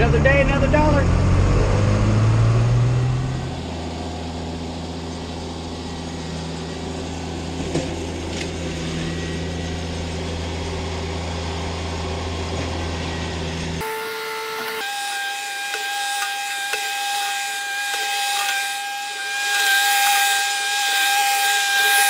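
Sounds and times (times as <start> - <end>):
backhoe engine running: 0.0 - 13.9.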